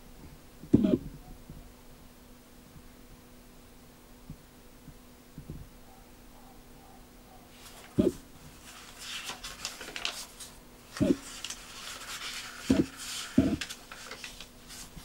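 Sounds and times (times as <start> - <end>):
paper pages rustling and flicking: 7.5 - 15.0.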